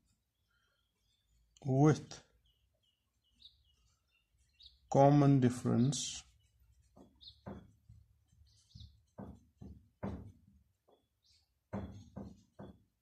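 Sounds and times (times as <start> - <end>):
pen writing on paper: 6.3 - 9.8, 11.8 - 12.8.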